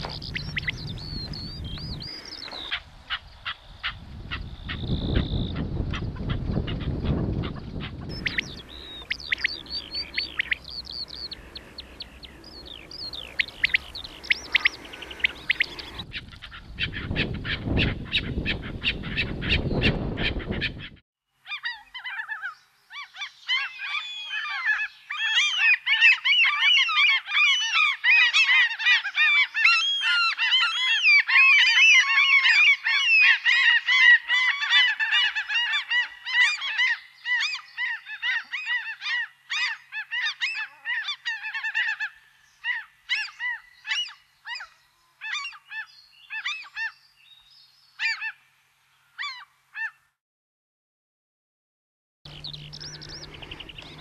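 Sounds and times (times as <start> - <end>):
flock of birds calling: 0.0 - 20.9, 21.5 - 47.0, 52.3 - 54.0
deeper sound: 8.0 - 16.1, 52.3 - 54.0.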